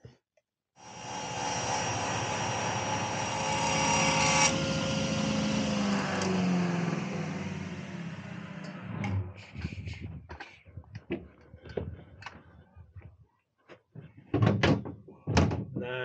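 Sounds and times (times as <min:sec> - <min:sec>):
woodworking machine running: 0:00.8 - 0:09.2.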